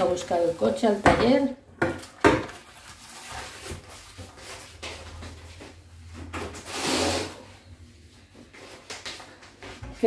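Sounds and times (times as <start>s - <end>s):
kitchen handling noises: 0.0s - 5.5s
short rubbing scrape: 6.6s - 7.6s.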